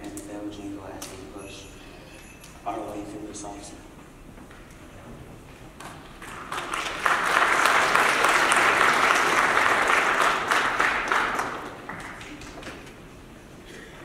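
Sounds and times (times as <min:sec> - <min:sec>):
audience applauding: 0:05.8 - 0:13.1.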